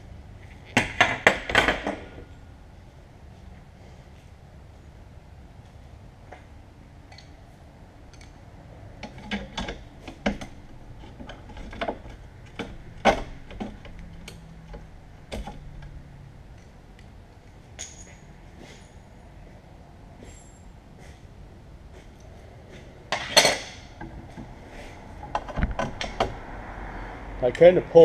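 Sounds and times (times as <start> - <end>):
ringing metal clink: 17.8 - 19.2.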